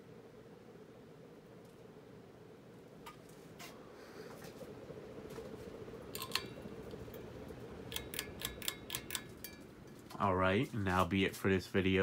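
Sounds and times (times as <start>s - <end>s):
ceiling fan hum and air: 0.0s - 12.0s
sharp metallic clicks: 7.9s - 9.6s.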